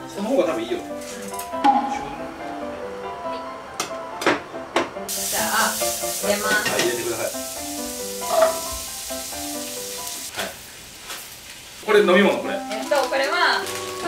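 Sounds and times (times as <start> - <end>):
background music: 0.0 - 10.3
meat sizzling in a frying pan: 5.1 - 14.0.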